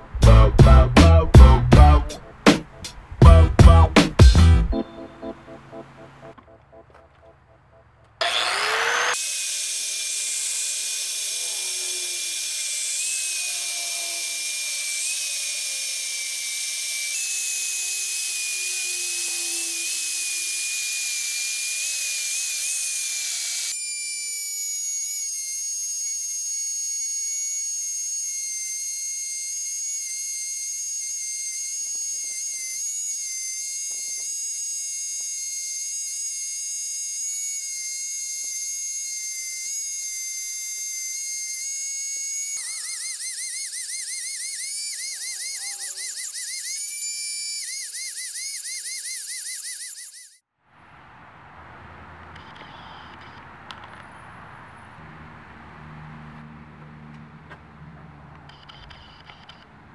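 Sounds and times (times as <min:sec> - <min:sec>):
angle grinder grinding steel: 0:08.2 - 0:50.4, 0:58.4 - 0:59.7
rotary tool grinding whine: 0:08.2 - 0:50.5, 0:52.3 - 0:54.2, 0:57.8 - 0:59.9.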